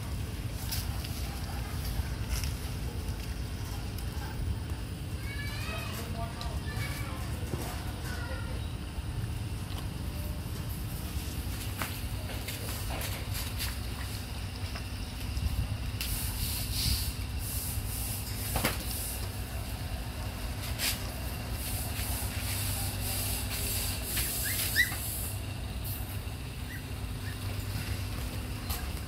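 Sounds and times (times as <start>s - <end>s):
high squeaks: 24.1s - 25.3s.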